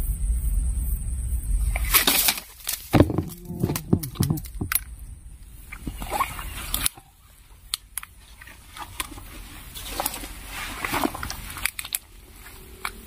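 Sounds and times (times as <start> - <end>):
low rumble: 0.0 - 2.0, 3.0 - 8.4
clothing and bag rustling: 8.2 - 13.0.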